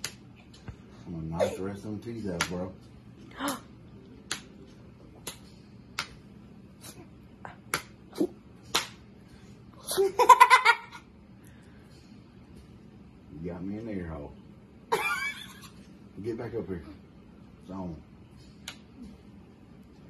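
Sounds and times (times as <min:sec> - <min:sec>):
hand slapping cheek: 0:00.0 - 0:00.8, 0:02.4 - 0:02.6, 0:04.2 - 0:04.6, 0:05.2 - 0:06.2, 0:07.6 - 0:09.1, 0:18.6 - 0:18.9.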